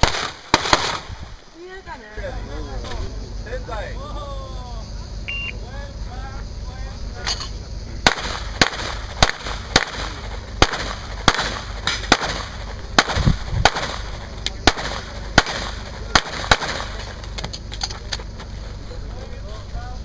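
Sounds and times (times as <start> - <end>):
pistol shots: 0.0 - 1.1, 8.0 - 17.2.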